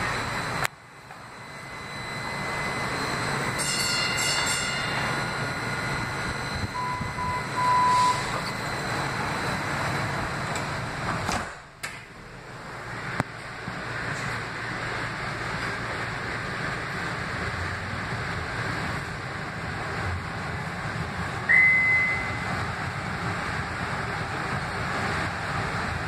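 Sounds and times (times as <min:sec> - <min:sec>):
rushing noise inside rail car: 0:00.0 - 0:26.0
electronic beeps: 0:05.7 - 0:09.0, 0:21.5 - 0:22.5.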